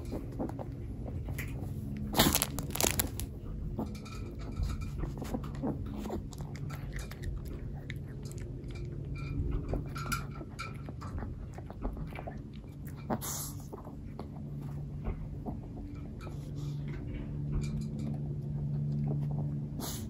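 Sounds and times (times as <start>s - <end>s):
dog crunching treats: 0.0s - 14.7s.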